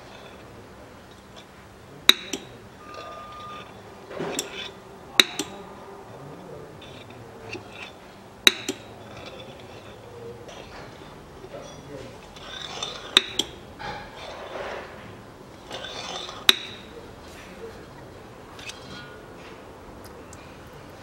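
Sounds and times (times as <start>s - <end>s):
oil pump metallic clicks: 2.1s - 5.7s, 6.8s - 14.3s, 15.6s - 16.9s.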